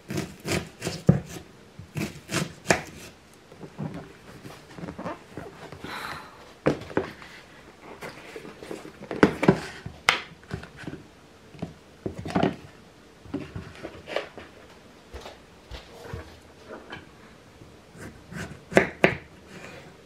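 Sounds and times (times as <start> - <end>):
knife cutting on wooden board: 0.1 - 3.1, 18.0 - 19.8.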